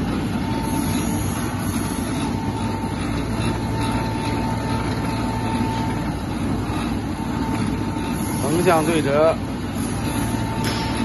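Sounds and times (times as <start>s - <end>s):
dough sheeter motor hum: 0.0s - 11.0s.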